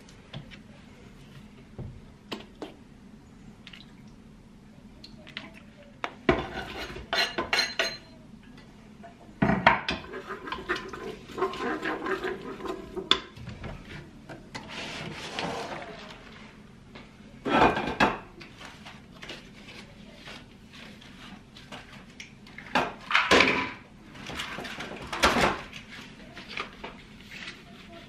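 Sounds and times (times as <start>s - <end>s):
stirring and knocking in pot: 5.3s - 8.1s, 9.5s - 16.0s
kitchen utensil clatter: 6.3s - 8.1s
spatula scraping wooden board: 10.1s - 13.0s.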